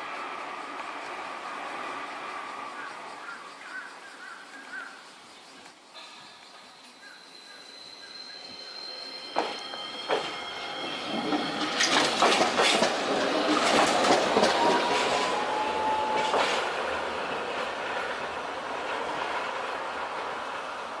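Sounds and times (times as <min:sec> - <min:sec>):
tram passing: 0:00.0 - 0:21.0
wheels clicking over rail joints: 0:11.1 - 0:20.0.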